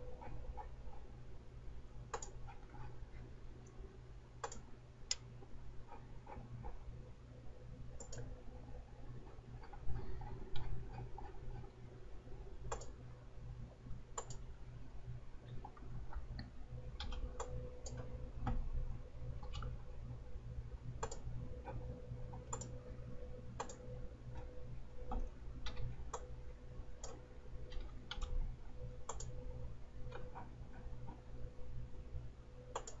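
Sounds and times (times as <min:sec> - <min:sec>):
steady low hum: 0:00.0 - 0:33.0
computer mouse clicking: 0:02.1 - 0:02.9, 0:04.4 - 0:05.3, 0:07.9 - 0:08.4, 0:09.6 - 0:11.7, 0:12.7 - 0:13.0, 0:14.1 - 0:14.5, 0:15.5 - 0:18.7, 0:19.4 - 0:19.8, 0:21.0 - 0:22.8, 0:23.6 - 0:24.5, 0:25.1 - 0:26.4, 0:27.0 - 0:28.4, 0:29.0 - 0:29.4, 0:32.7 - 0:33.0.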